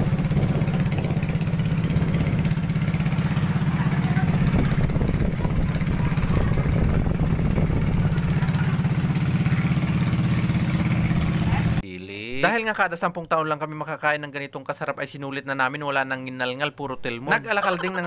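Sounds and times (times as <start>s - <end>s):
boat engine putter: 0.0s - 11.8s.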